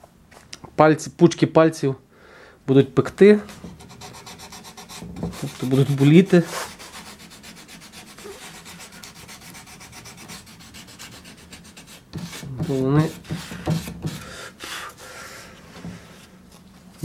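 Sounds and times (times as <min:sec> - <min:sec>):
sandpaper rubbing on wood: 0:03.7 - 0:15.0.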